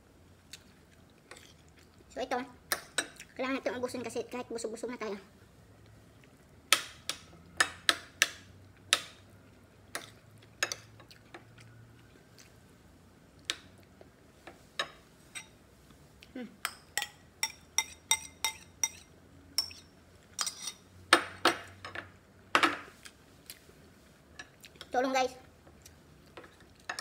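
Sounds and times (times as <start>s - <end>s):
metal spoon clinking on ceramic bowls: 16.6s - 20.8s.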